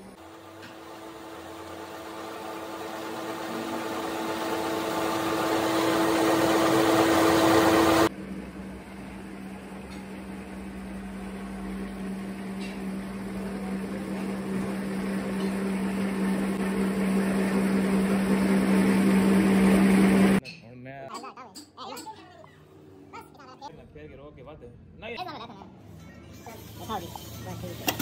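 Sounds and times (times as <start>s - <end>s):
metal lathe humming: 0.0s - 8.1s.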